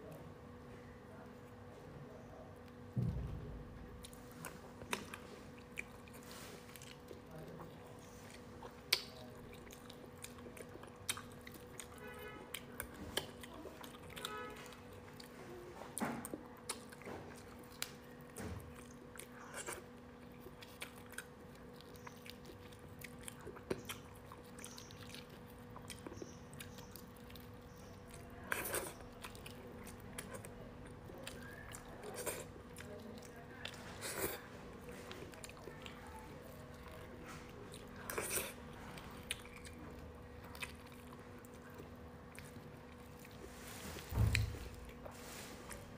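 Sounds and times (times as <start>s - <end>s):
soft chewing: 3.8s - 45.9s.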